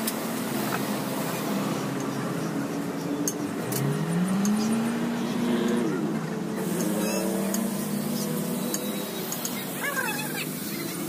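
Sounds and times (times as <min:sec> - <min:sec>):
engine revving: 0:00.0 - 0:11.0.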